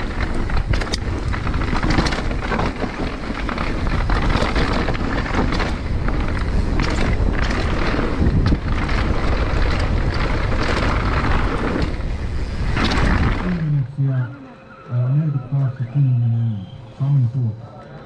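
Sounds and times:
bike rattling over bumps: 0:00.0 - 0:13.8
wind rushing on microphone: 0:00.0 - 0:13.9
tyres rolling on dirt trail: 0:00.0 - 0:14.5.

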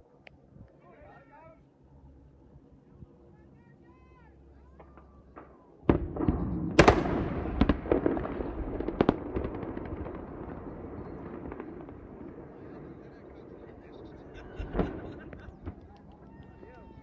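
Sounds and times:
sharp cracks: 0:04.8 - 0:12.8
explosive blast: 0:05.9 - 0:13.8.

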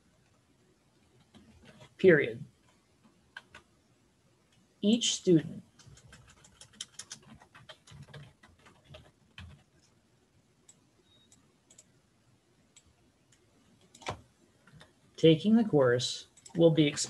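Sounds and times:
typing on computer keyboard: 0:03.3 - 0:03.7, 0:05.8 - 0:09.9, 0:10.7 - 0:11.9.

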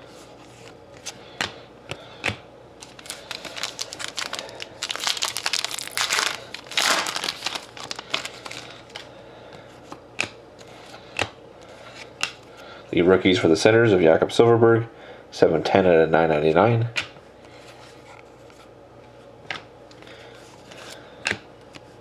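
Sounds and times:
foil pack crinkling: 0:02.8 - 0:09.1.

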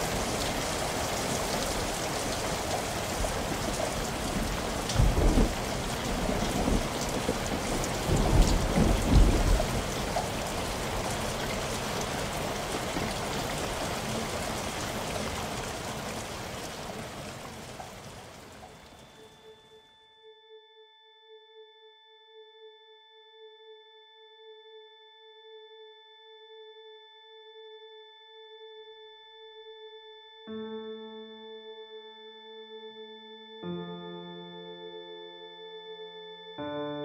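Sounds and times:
low rolls of thunder: 0:00.0 - 0:18.8
steady rain: 0:00.0 - 0:19.5.

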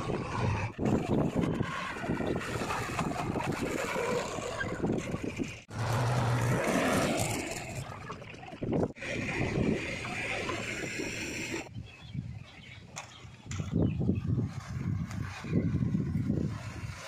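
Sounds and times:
diesel engines running: 0:00.0 - 0:11.7.

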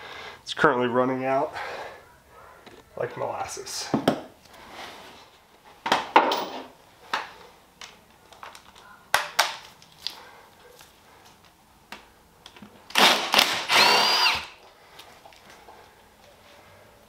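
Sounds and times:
cordless power tool running: 0:12.9 - 0:14.6.

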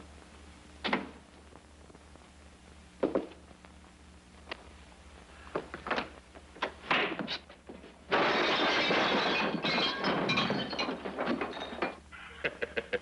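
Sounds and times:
loud crash of falling chairs: 0:06.8 - 0:12.0
clattering and breaking: 0:06.9 - 0:12.1.

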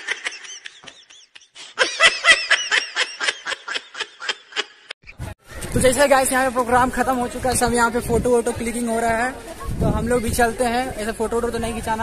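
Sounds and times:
boys laughing: 0:00.0 - 0:05.2.

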